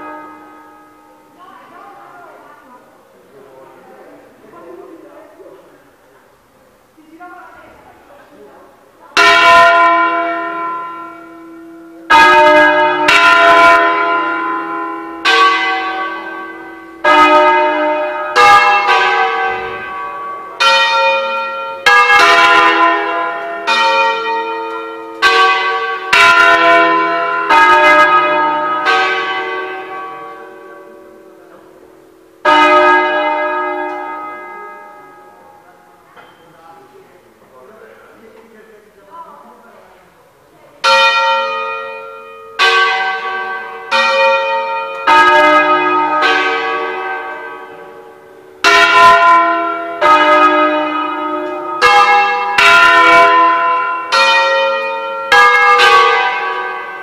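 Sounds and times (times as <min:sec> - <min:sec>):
church bells ringing melody: 0:00.0 - 0:02.6, 0:09.1 - 0:36.4, 0:40.8 - 0:57.0.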